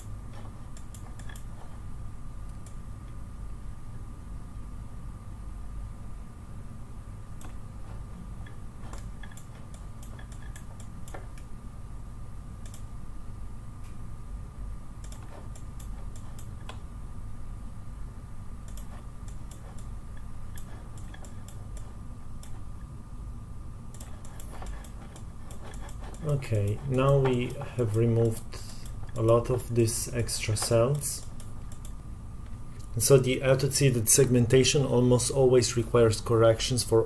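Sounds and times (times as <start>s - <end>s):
computer mouse clicking: 0.0s - 1.7s, 7.4s - 11.5s, 12.6s - 12.9s, 15.0s - 16.8s, 18.6s - 22.7s, 23.9s - 32.9s.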